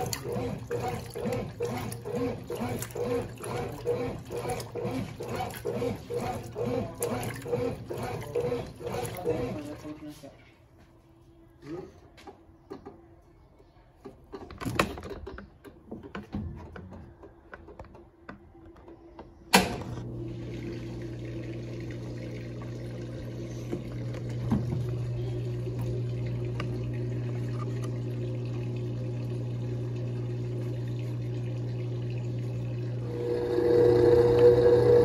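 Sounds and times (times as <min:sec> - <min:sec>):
water sounds: 0:00.0 - 0:10.2, 0:20.0 - 0:35.0
washing machine motor hum: 0:00.0 - 0:10.3, 0:14.1 - 0:35.0.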